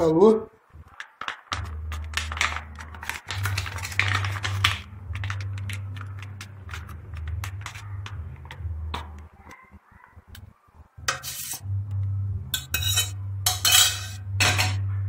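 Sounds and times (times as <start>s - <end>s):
steady low hum: 10.3s - 15.0s
spoon scraping baking dish: 11.1s - 11.7s, 12.6s - 14.8s.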